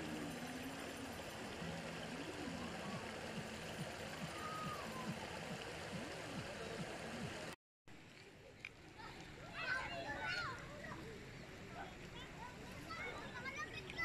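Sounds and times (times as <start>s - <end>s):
faint voices: 1.6s - 7.5s.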